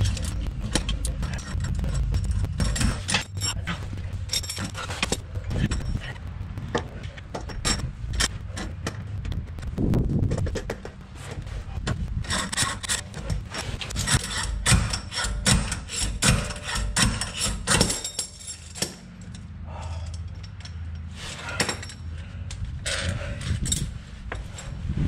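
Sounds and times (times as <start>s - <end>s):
low hum: 0.0s - 25.0s
hand tools clinking on metal: 14.2s - 22.1s.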